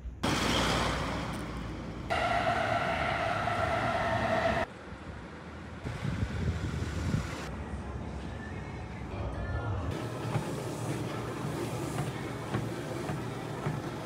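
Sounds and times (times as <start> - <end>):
car engine rumble: 0.0 - 7.7
train passing: 0.2 - 7.7
high whine: 2.1 - 4.8.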